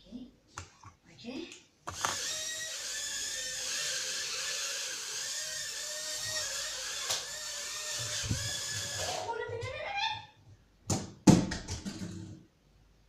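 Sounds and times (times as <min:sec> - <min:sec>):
toy drone motors whining: 0:02.0 - 0:09.2.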